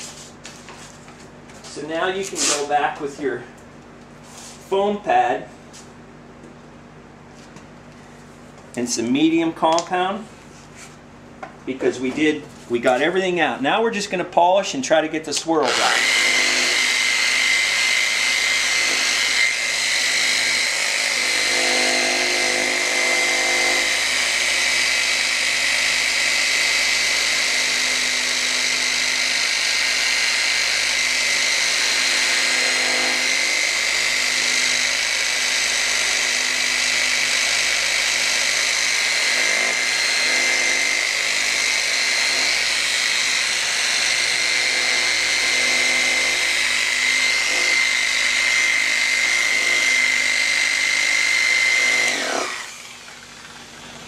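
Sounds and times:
electric polisher whining: 0:15.7 - 0:54.0.

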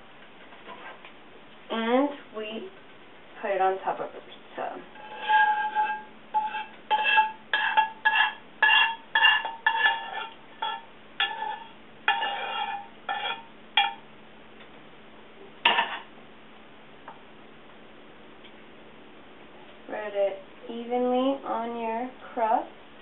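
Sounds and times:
metal spoon scraping a pan: 0:04.6 - 0:14.0, 0:15.7 - 0:16.1
pan clanking on stove: 0:05.1 - 0:14.0, 0:15.6 - 0:16.1.

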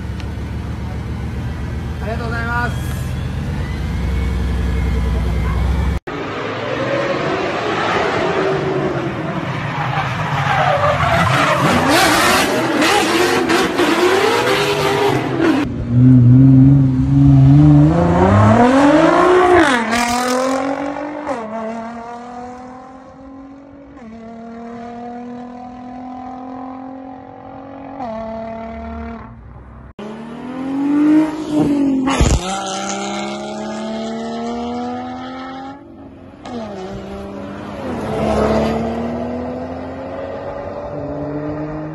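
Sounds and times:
sports car engines revving: 0:11.4 - 0:29.4, 0:30.0 - 0:41.9.

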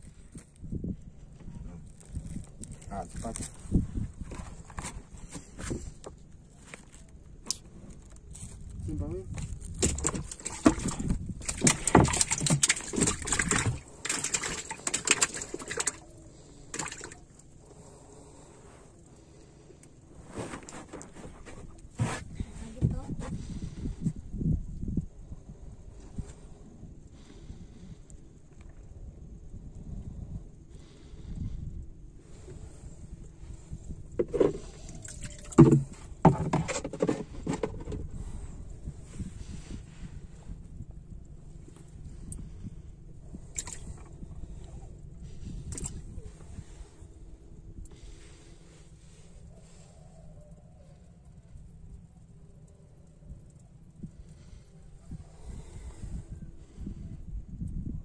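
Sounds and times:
low steady rumble: 0:00.0 - 0:36.6, 0:37.2 - 0:58.0
fish slapping on wooden floor: 0:09.6 - 0:16.1, 0:16.7 - 0:17.2, 0:34.4 - 0:37.8
knocks and thumps on wooden boat: 0:09.7 - 0:16.0, 0:35.2 - 0:38.1.

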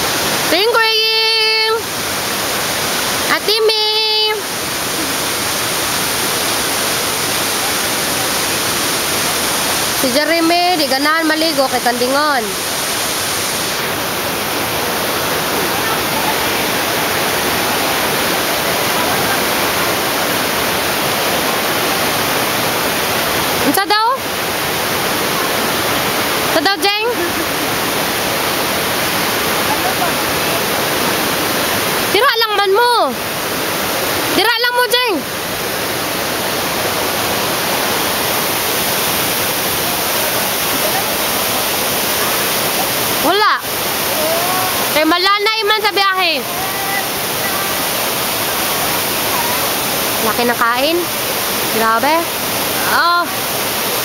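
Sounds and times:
stream water pouring over rocks: 0:00.0 - 0:54.0.

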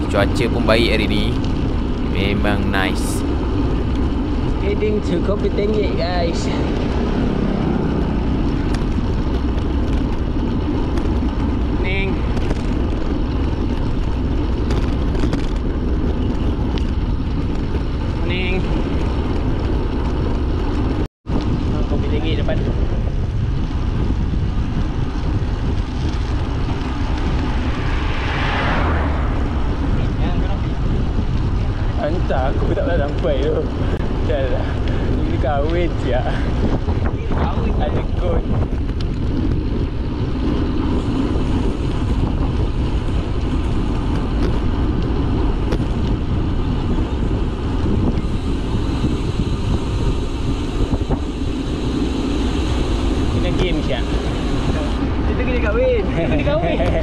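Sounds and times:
wind buffeting microphone: 0:00.0 - 0:57.0
vehicle passing close by: 0:02.1 - 0:09.5, 0:25.8 - 0:32.0.

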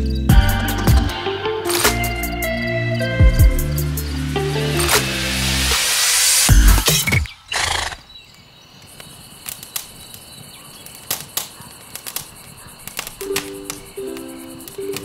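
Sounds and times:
background music: 0:00.0 - 0:06.9, 0:13.2 - 0:15.0
campfire crackling and popping: 0:08.3 - 0:15.0.

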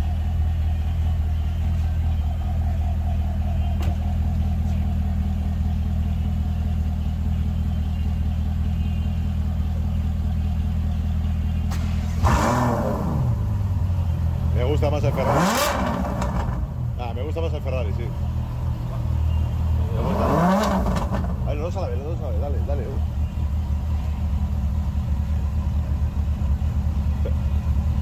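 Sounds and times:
car engine idling: 0:00.0 - 0:28.0
engine throttle rev: 0:11.6 - 0:17.2, 0:19.0 - 0:22.8.

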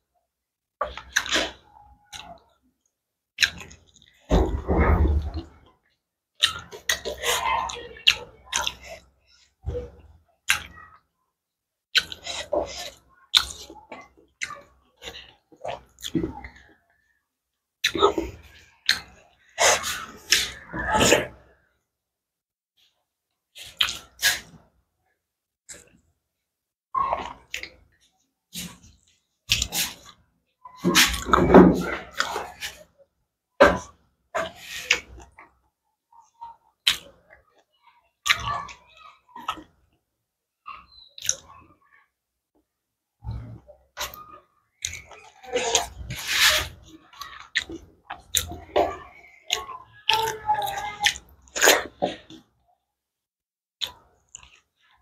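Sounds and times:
chewing with lip smacks: 0:06.4 - 0:09.1, 0:43.3 - 0:52.4, 0:53.8 - 0:54.9
wet mouth smacks and chewing: 0:23.6 - 0:24.6.

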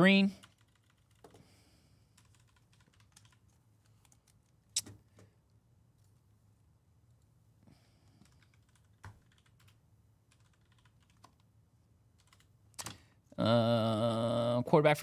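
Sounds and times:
man talking: 0:00.0 - 0:00.4, 0:13.4 - 0:15.0
typing on a keyboard: 0:00.3 - 0:01.4, 0:02.2 - 0:05.0, 0:08.2 - 0:11.5, 0:12.2 - 0:13.0.

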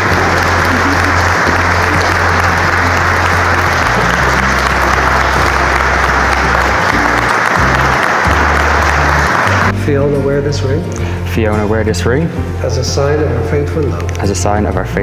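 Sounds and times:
congregation applauding: 0:00.0 - 0:09.8
music with low sustained notes: 0:00.0 - 0:15.0.

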